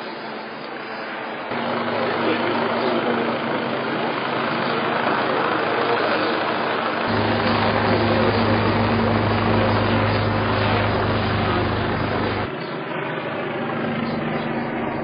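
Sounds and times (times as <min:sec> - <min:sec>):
street noise: 0:00.0 - 0:15.0
low pulsing mechanical drone: 0:07.0 - 0:12.8.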